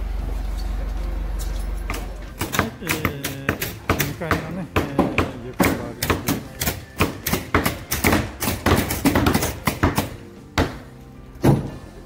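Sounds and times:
background music: 0:01.1 - 0:12.0
nail guns firing into wood: 0:02.4 - 0:11.8.

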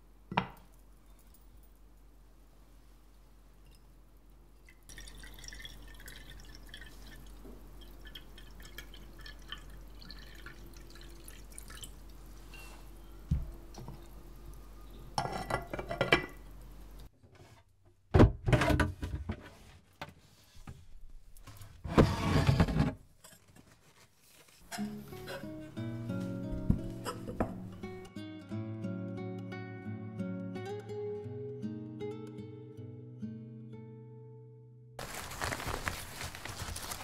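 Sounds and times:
water trickling into a pot: 0:04.6 - 0:12.6
handling noise: 0:35.0 - 0:37.0.

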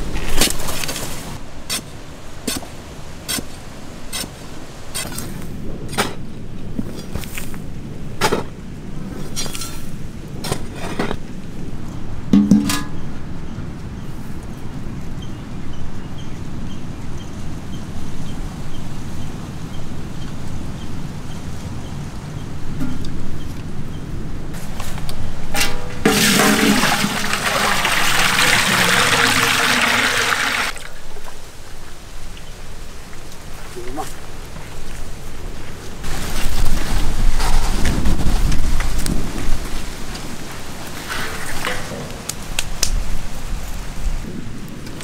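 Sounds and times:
shovel scraping soil: 0:00.2 - 0:01.9, 0:03.3 - 0:06.2
metal pot clanking: 0:12.4 - 0:13.0, 0:25.5 - 0:30.7.

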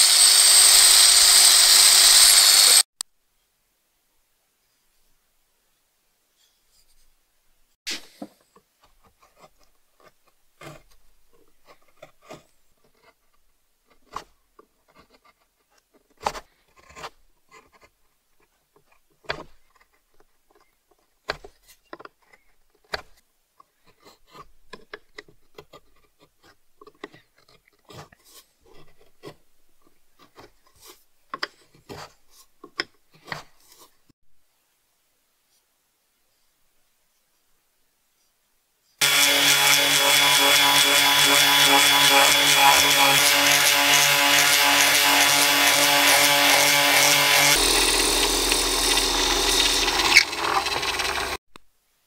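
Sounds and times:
soft rubbing and scraping: 0:06.3 - 0:07.2.

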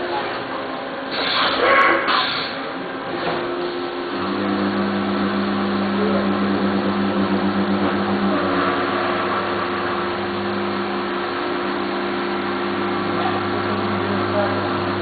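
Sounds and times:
milling machine cutting: 0:03.5 - 0:15.0.

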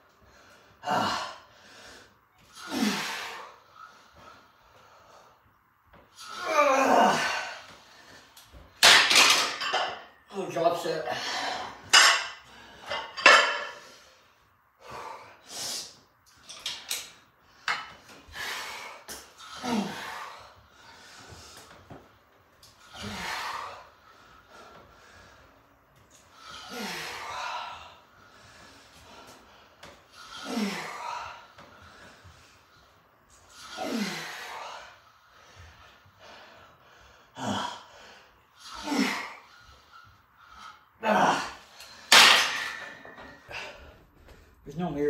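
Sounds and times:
man exhaling and grunting: 0:00.8 - 0:01.5, 0:02.6 - 0:03.5, 0:06.2 - 0:07.6, 0:18.4 - 0:20.5, 0:22.9 - 0:23.9, 0:26.4 - 0:27.9, 0:30.2 - 0:31.5, 0:33.5 - 0:34.9, 0:37.4 - 0:37.9, 0:38.6 - 0:39.5, 0:41.0 - 0:41.8
weight plates clanking: 0:11.9 - 0:13.8.

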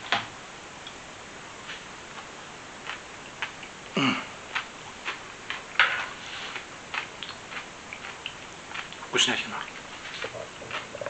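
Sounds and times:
person chewing crunchy salad: 0:01.6 - 0:11.0.

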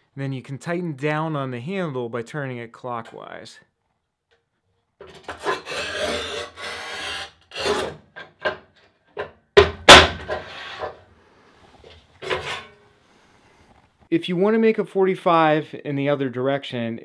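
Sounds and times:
tile cutter scraping: 0:05.0 - 0:08.0, 0:10.3 - 0:11.0.

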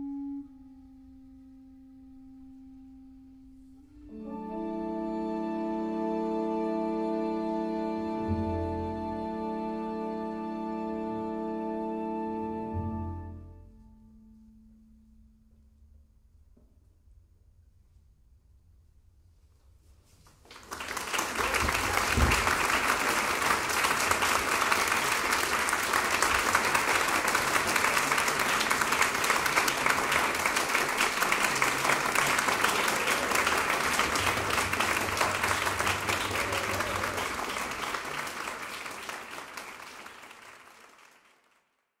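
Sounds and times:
audience applauding: 0:20.4 - 0:41.8.

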